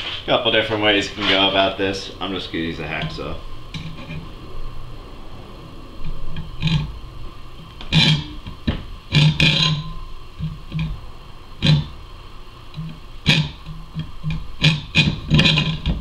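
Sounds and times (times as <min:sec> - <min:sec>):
hacksaw cutting metal: 0:13.2 - 0:13.6, 0:14.6 - 0:16.0.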